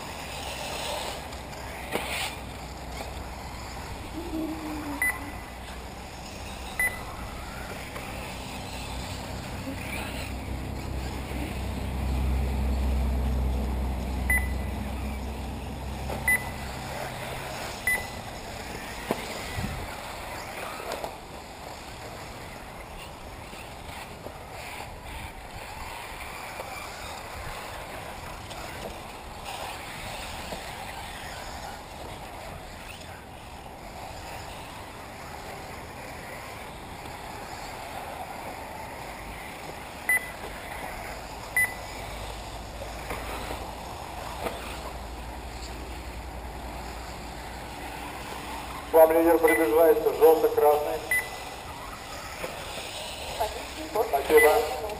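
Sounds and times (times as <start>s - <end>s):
electric rc cars running: 0.0s - 54.9s
short high beeps: 5.0s - 5.4s, 6.8s - 7.1s, 14.3s - 14.7s, 16.2s - 16.6s, 17.9s - 18.2s, 40.1s - 40.3s, 41.6s - 41.8s, 49.4s - 49.7s, 51.1s - 51.4s.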